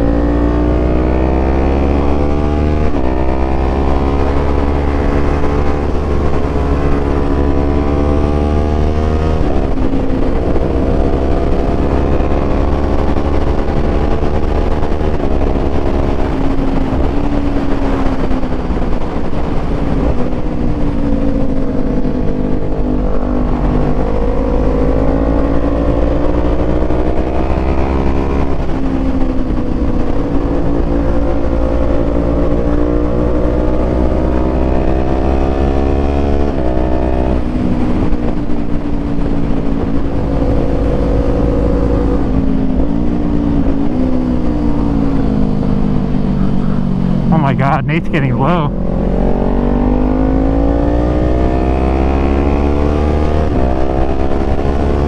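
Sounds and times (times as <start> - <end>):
wind rushing over microphone: 0.0 - 27.5
motorcycle engine accelerating: 0.0 - 47.3.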